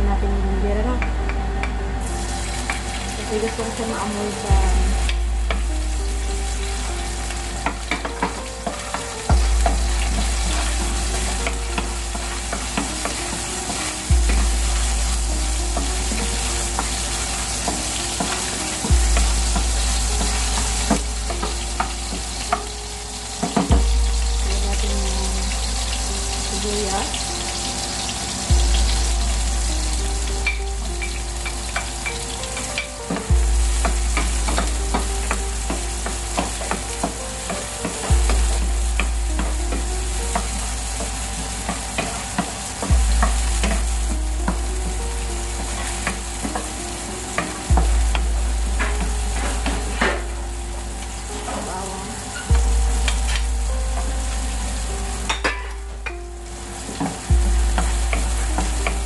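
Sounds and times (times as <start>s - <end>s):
deep low hum: 0.0s - 8.6s, 9.3s - 22.5s, 23.7s - 27.7s, 28.5s - 31.6s, 33.3s - 36.7s, 38.1s - 41.7s, 42.8s - 46.6s, 47.7s - 51.4s, 52.5s - 56.3s, 57.3s - 59.0s
ginger sizzling in oil: 2.0s - 59.0s.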